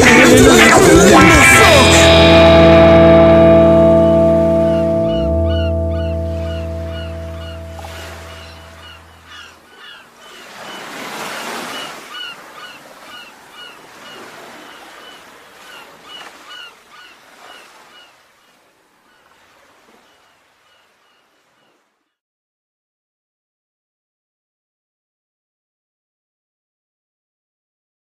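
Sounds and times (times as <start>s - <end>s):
surf washing in: 0.0s - 21.8s
low steady drone: 1.2s - 9.3s
short repeated bird calls: 4.6s - 19.3s.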